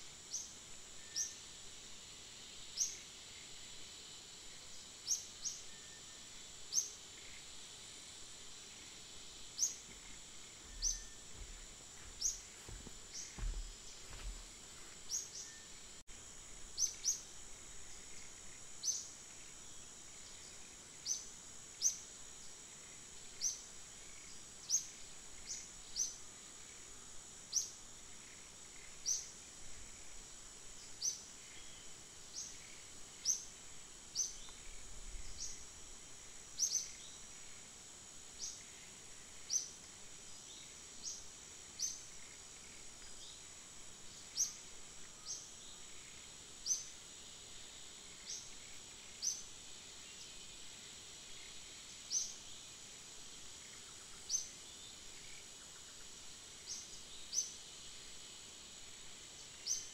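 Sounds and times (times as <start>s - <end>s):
high-pitched insect drone: 0.0s - 59.9s
faint low thumps: 9.9s - 14.9s.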